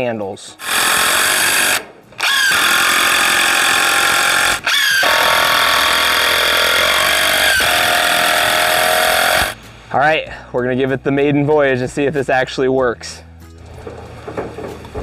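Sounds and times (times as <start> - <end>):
cordless drill driving screws into wood: 0.6 - 9.6.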